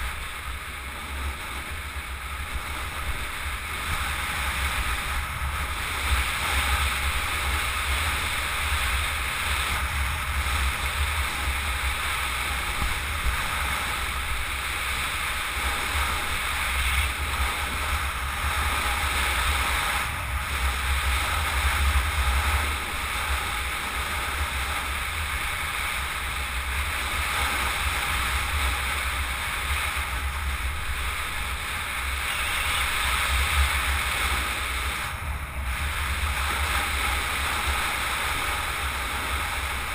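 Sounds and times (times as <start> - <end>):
road noise: 0.0 - 39.9
vehicle low rumble: 0.0 - 39.9
wind buffeting microphone: 0.0 - 39.9.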